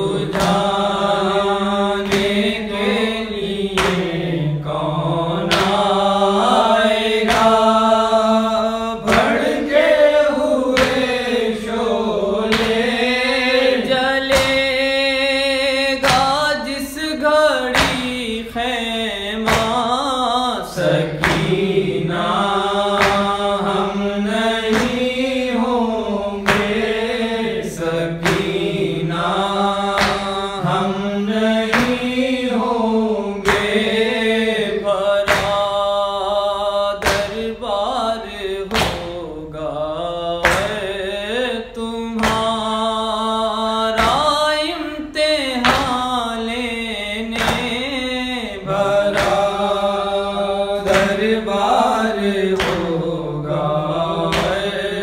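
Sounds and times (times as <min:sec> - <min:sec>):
regular percussive beat: 0:00.0 - 0:14.8, 0:20.8 - 0:32.8, 0:48.7 - 0:50.1
man chanting: 0:00.0 - 0:55.0.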